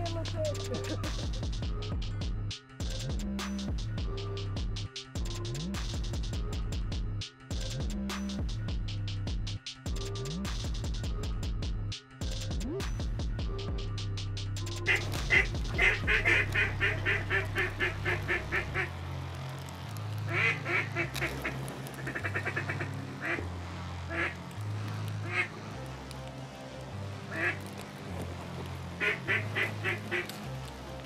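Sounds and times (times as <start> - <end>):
background music with bass: 0.0 - 31.0
duck call quacks: 14.9 - 18.9, 20.3 - 23.4, 25.2 - 25.5, 29.0 - 30.2.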